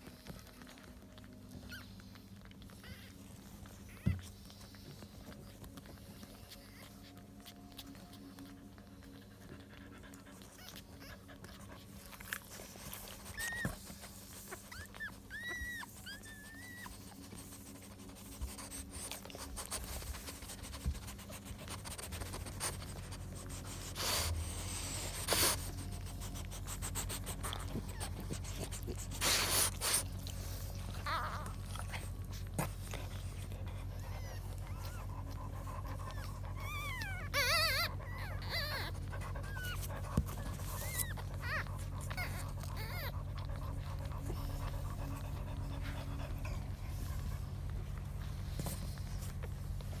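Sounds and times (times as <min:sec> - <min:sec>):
puppies whimpering: 0:00.0 - 0:50.0
puppies squeaking: 0:00.2 - 0:21.7, 0:22.4 - 0:50.0.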